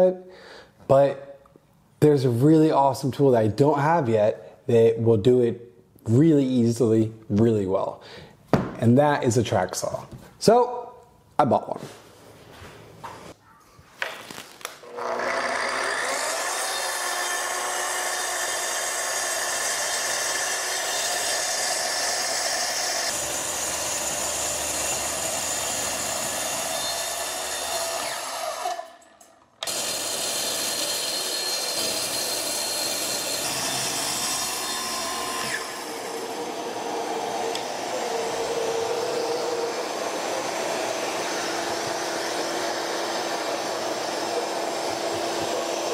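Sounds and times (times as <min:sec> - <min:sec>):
track saw cutting wood: 0:14.8 - 0:45.9.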